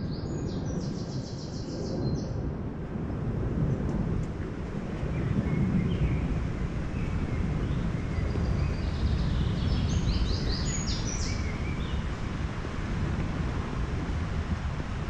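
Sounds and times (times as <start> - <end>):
steady low rumble: 1.9 - 15.0
bird chirping: 7.0 - 12.0.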